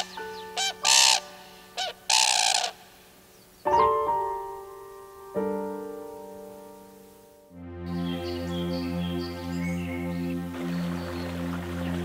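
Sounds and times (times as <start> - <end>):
cranes calling: 0.0 - 3.6
soft piano chords: 0.0 - 12.0.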